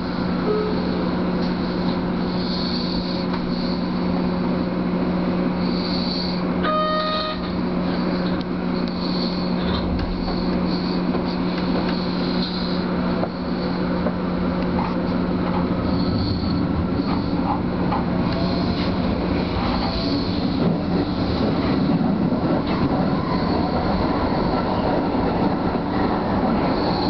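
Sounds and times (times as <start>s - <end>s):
electric train hum: 0.0s - 27.0s
short beep: 6.6s - 7.5s
wheel squeal: 15.8s - 17.4s.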